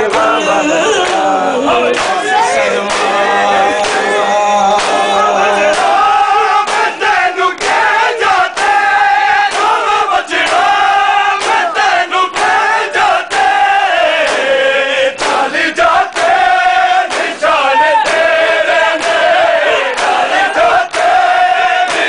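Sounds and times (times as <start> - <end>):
men chanting together: 0.0 - 22.0
hands slapping bare chests: 1.9 - 2.3, 2.9 - 3.1, 5.7 - 7.9, 8.6 - 13.6, 14.2 - 14.5, 15.2 - 16.5, 19.0 - 22.0.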